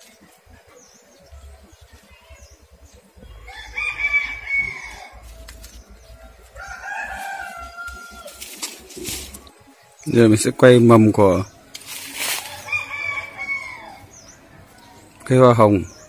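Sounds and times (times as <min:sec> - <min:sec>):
rooster crowing: 0:03.2 - 0:05.4, 0:06.1 - 0:09.4, 0:12.2 - 0:15.1.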